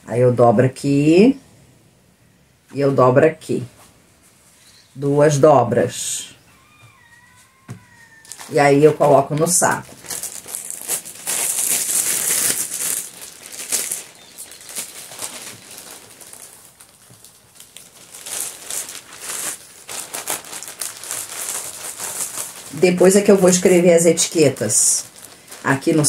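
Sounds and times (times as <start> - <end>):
plastic bag crinkling: 6.5 - 26.0.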